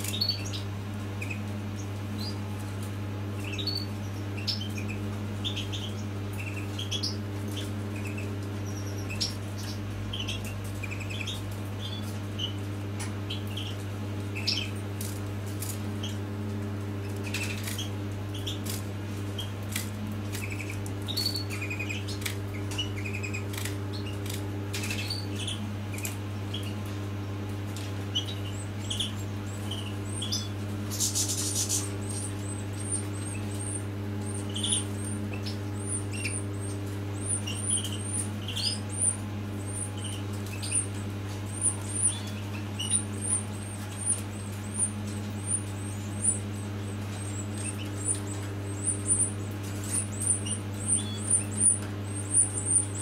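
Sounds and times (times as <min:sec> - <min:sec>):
steady low hum: 0:00.0 - 0:53.0
nestlings cheeping: 0:17.0 - 0:26.9, 0:28.1 - 0:53.0.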